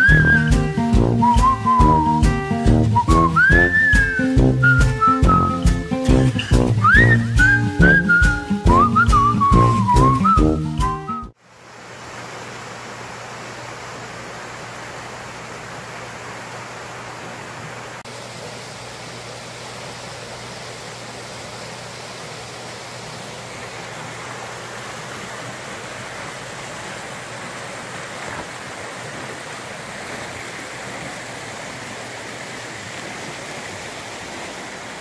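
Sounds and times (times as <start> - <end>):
steady hiss: 11.3 - 35.0.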